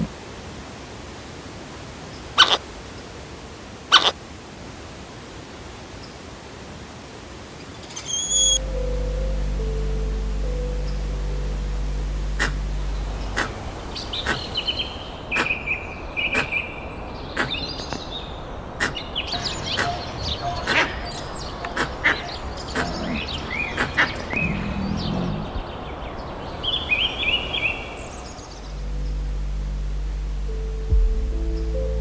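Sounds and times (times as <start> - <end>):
background hiss: 0.0 - 32.0
birds chirping and trilling: 7.7 - 29.2
quick falling whistles: 7.9 - 8.6.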